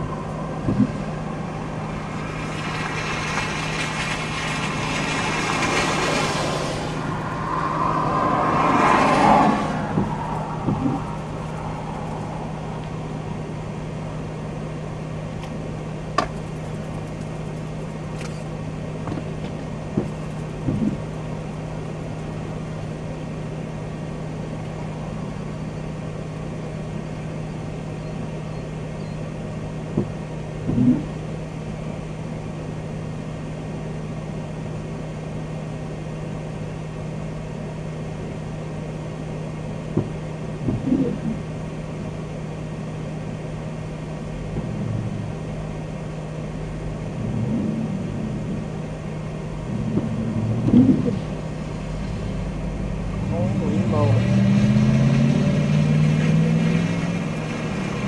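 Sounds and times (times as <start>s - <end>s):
vehicle cabin hum: 0.0s - 58.0s
windshield wiper click: 0.6s - 1.0s, 19.1s - 21.1s, 30.0s - 31.1s, 40.0s - 41.4s
windshield wiper swish: 0.6s - 1.1s, 9.9s - 11.3s, 19.9s - 21.1s, 29.9s - 31.1s, 39.9s - 41.4s, 49.7s - 51.4s.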